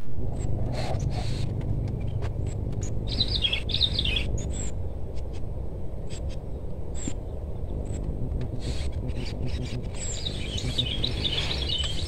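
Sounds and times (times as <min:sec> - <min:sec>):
steady low rumble: 0:00.0 - 0:12.0
small bird chirping: 0:02.8 - 0:04.9, 0:06.1 - 0:12.0.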